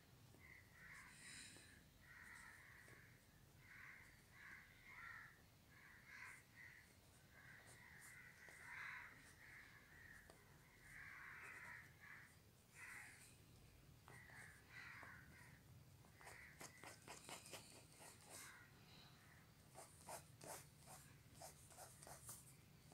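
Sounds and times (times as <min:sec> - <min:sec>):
pencil scratching on paper: 0:07.4 - 0:09.5, 0:16.2 - 0:18.6, 0:19.7 - 0:22.9.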